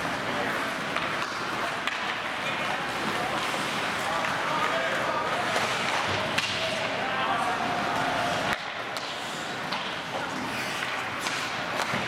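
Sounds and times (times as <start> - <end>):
hockey sticks and puck clacking: 0.0 - 12.0
skates scraping on ice: 0.0 - 12.0.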